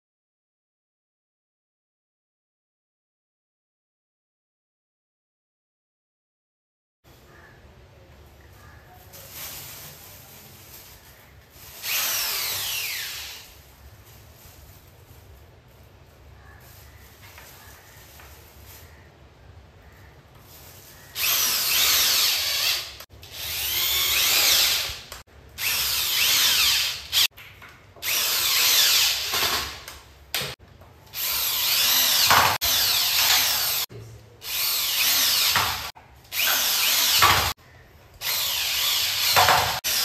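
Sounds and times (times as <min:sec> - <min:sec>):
electric drill driving screws: 0:11.8 - 0:13.5, 0:21.2 - 0:27.3, 0:28.0 - 0:29.8, 0:31.2 - 0:37.6, 0:38.2 - 0:40.0.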